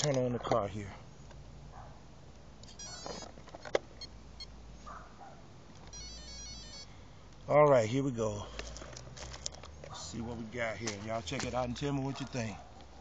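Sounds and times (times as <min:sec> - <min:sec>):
quick stepped beeps: 0:05.9 - 0:06.9.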